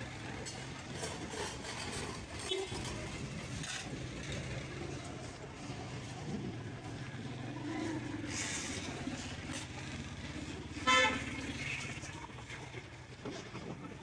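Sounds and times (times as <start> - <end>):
vehicle engine running: 0.0 - 14.0
vehicle horn honk: 10.8 - 11.4.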